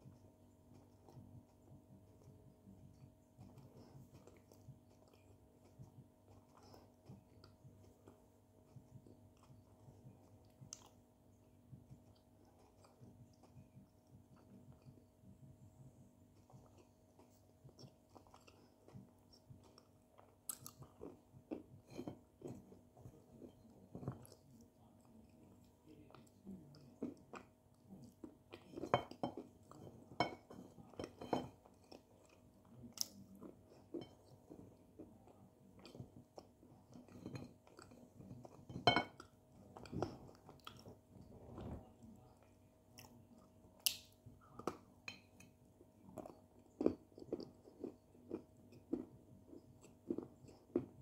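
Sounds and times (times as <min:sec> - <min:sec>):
chewing dry clay crunching: 0:00.0 - 0:51.0.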